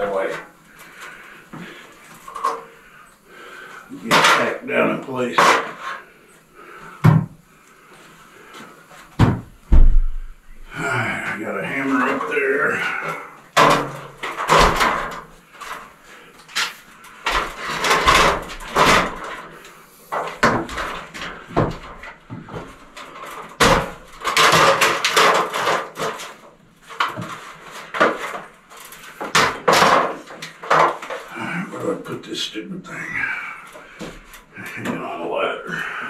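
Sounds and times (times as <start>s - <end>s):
stepladder knocking and clattering: 9.2s - 10.7s, 13.6s - 15.8s, 17.3s - 31.3s.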